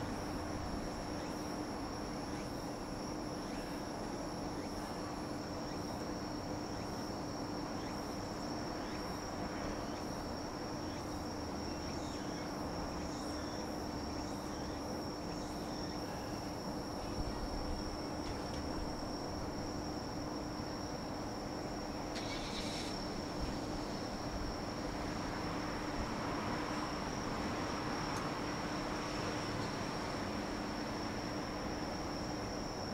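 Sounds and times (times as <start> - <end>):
background noise: 0.0 - 32.9
crickets trilling: 0.0 - 32.9.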